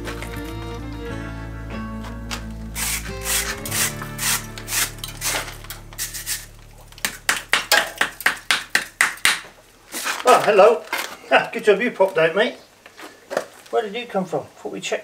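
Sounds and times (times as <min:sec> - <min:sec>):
music with sustained chords: 0:00.0 - 0:09.9
brush scrubbing stone: 0:02.8 - 0:06.5.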